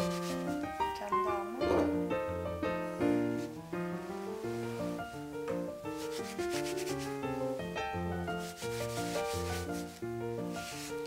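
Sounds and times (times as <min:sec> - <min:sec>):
towel rubbing on wood: 0:00.0 - 0:00.7, 0:05.7 - 0:07.6, 0:08.2 - 0:11.0
background piano music: 0:00.0 - 0:11.0.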